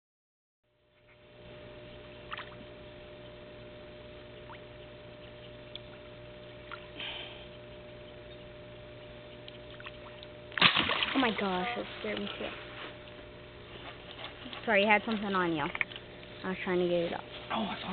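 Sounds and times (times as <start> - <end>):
steady low hum: 0.7 - 17.9.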